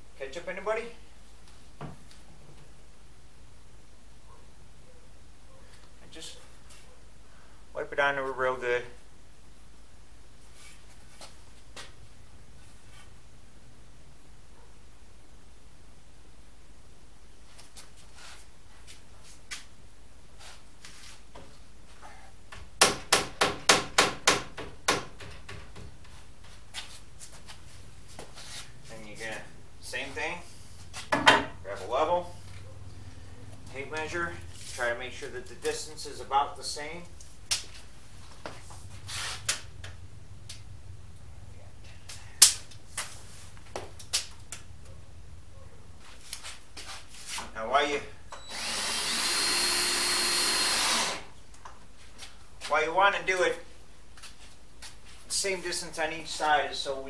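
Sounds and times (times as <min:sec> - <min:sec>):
steady low hum: 0:26.0 - 0:46.8.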